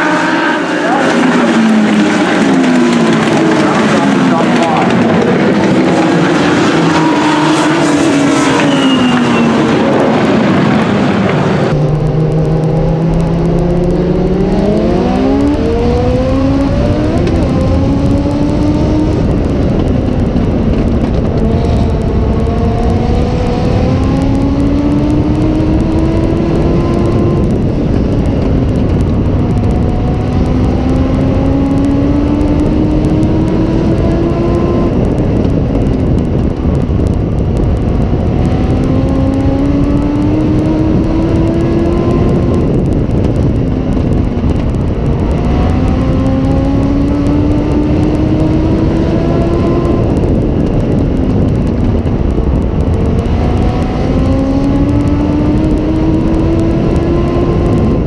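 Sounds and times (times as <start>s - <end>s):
race cars on track: 0.0s - 58.0s.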